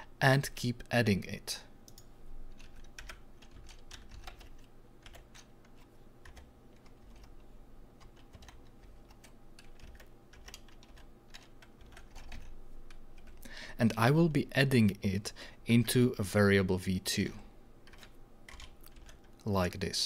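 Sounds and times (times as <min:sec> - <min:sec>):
keyboard typing: 0:01.9 - 0:13.5, 0:17.8 - 0:19.4.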